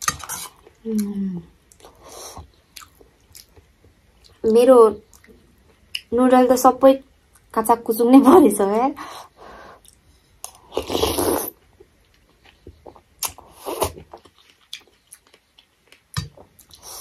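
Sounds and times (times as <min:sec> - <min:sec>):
chewing crunchy noodles: 0:09.8 - 0:16.9.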